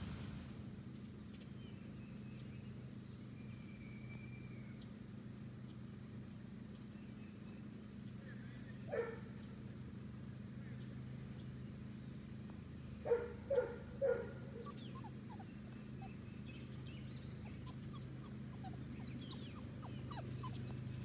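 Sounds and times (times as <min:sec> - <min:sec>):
puppies yipping: 0:08.9 - 0:09.3, 0:13.0 - 0:21.0.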